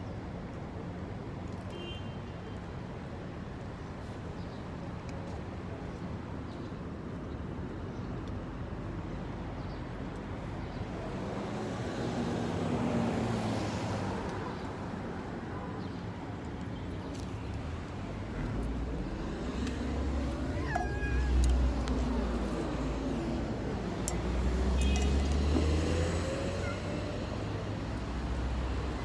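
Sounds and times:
traffic rumble: 2.8s - 29.0s
cat meowing: 20.2s - 22.1s.

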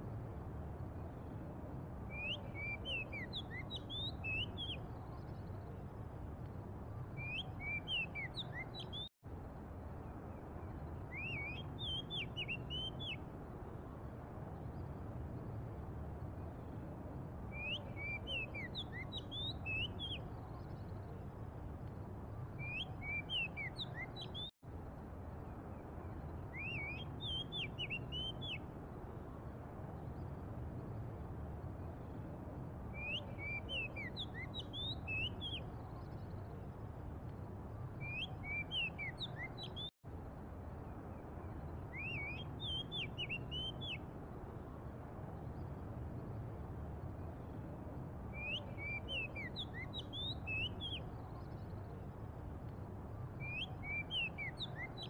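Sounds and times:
bird singing whistled notes: 2.1s - 5.6s, 7.1s - 9.1s, 10.7s - 13.2s, 17.5s - 20.9s, 22.5s - 24.5s, 26.3s - 28.6s, 32.9s - 36.6s, 37.9s - 39.9s, 41.4s - 44.0s, 48.3s - 52.0s, 53.4s - 55.0s.

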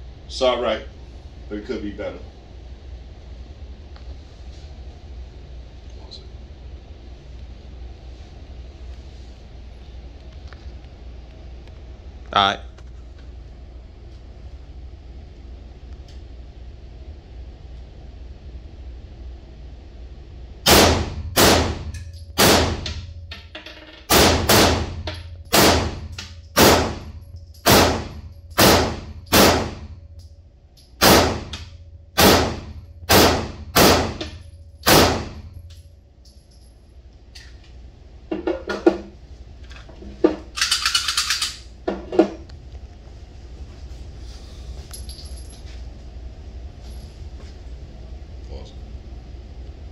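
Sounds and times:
pistol shots echoing indoors: 20.6s - 30.1s, 31.0s - 35.9s.

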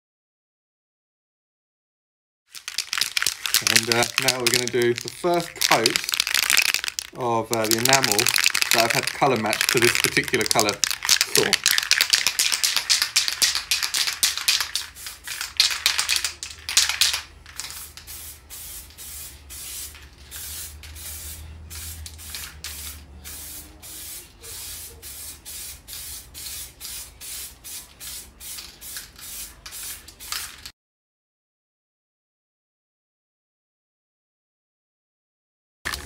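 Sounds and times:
spray gun hissing: 17.7s - 30.4s.

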